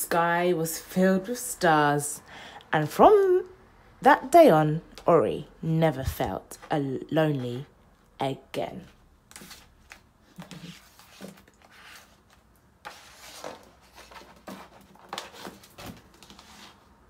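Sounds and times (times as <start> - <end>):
book pages turning: 9.3 - 16.9.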